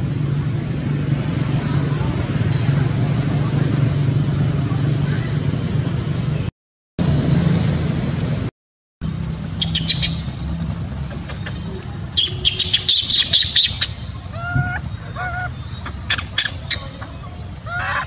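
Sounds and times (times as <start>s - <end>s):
low background hum: 9.0s - 18.0s
monkey calls rising and falling: 9.6s - 18.0s
monkeys squealing: 11.0s - 18.0s.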